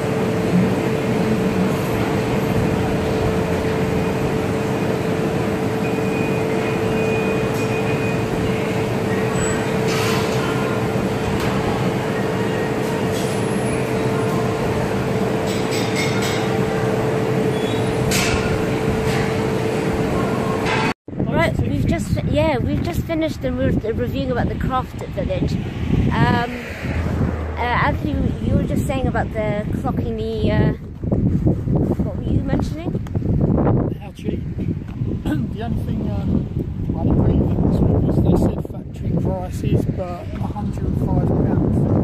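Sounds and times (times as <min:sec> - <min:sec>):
constant hum: 0:00.0 - 0:42.0
electric fans running: 0:00.0 - 0:42.0
gas furnace roaring: 0:00.0 - 0:42.0.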